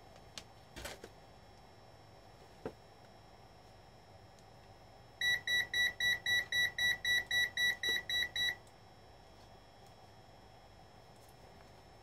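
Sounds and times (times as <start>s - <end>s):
multimeter buzzer beeping rapidly: 5.2s - 8.6s.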